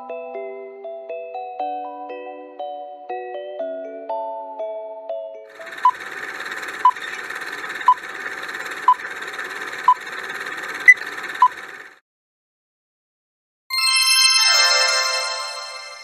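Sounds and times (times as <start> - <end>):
timer ticking: 5.6 - 11.7.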